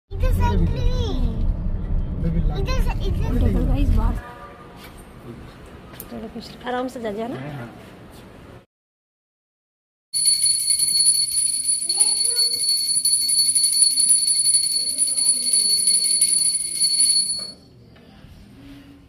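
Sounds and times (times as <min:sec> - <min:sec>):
bell ringing rapidly: 0:10.2 - 0:17.6.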